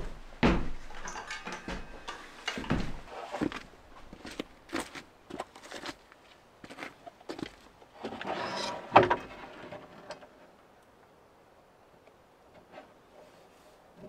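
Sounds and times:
wooden sheet knocking and clattering: 0:00.0 - 0:04.5
wooden sheet scraping: 0:01.8 - 0:05.0, 0:08.0 - 0:10.3.

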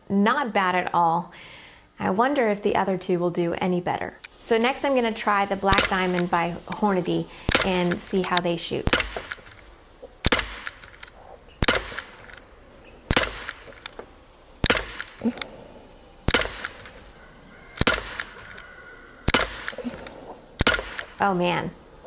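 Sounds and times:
bb pistol shots cracking: 0:05.6 - 0:14.0, 0:14.6 - 0:15.3, 0:16.2 - 0:17.1, 0:17.8 - 0:18.6, 0:19.2 - 0:21.3
pistol click: 0:07.4 - 0:09.6, 0:10.2 - 0:12.4, 0:13.1 - 0:15.5, 0:16.3 - 0:17.0, 0:17.8 - 0:21.2.

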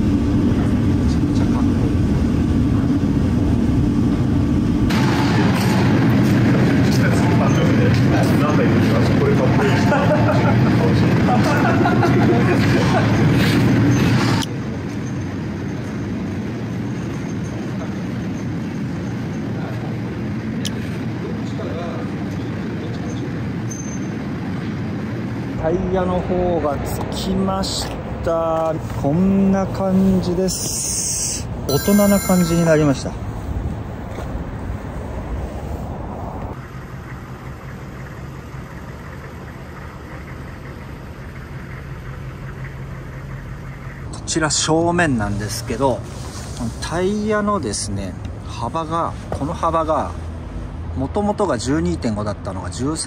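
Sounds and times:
loud rough noise: 0:03.3 - 0:09.7
vehicle engine rumbling: 0:32.6 - 0:50.9
diesel engine idling: 0:36.6 - 0:44.1.

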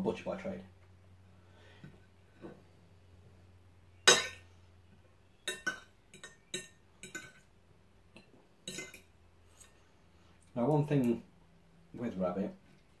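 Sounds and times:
metal fork clinking on china plate: 0:05.5 - 0:07.4, 0:08.6 - 0:09.1.

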